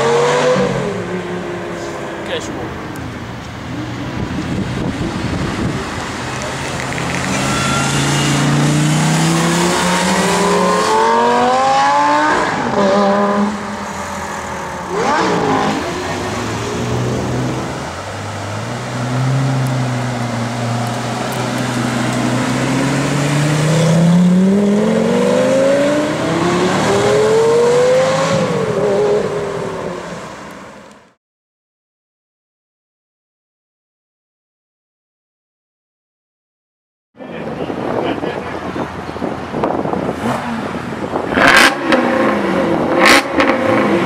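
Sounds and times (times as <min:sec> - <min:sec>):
car engine accelerating hard: 0:03.8 - 0:30.0, 0:39.6 - 0:44.0.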